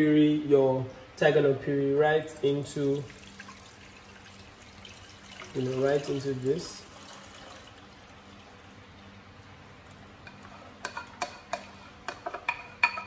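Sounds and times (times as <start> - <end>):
puree pouring hiss: 2.8 - 8.6
spoon and bowl clinking on metal pot: 10.2 - 13.0.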